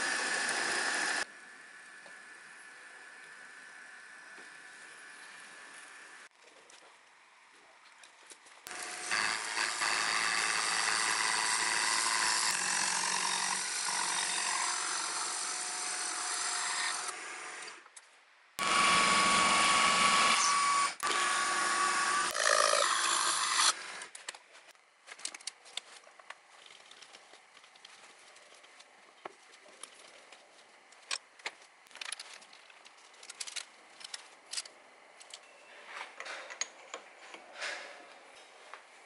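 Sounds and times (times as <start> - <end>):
milling machine whirring: 0.0 - 1.3.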